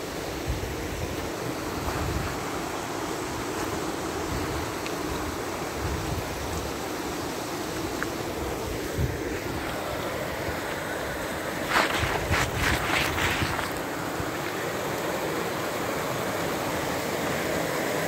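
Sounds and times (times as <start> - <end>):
creek rushing over rapids: 0.0 - 18.0
wind buffeting microphone: 11.6 - 13.9.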